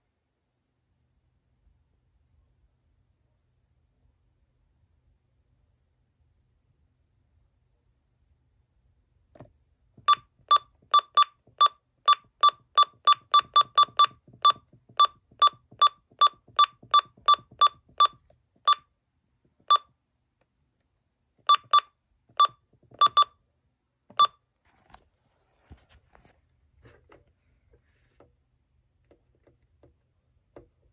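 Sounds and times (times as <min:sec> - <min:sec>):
high electronic keypad beeps: 0:10.1 - 0:18.8, 0:21.5 - 0:23.3.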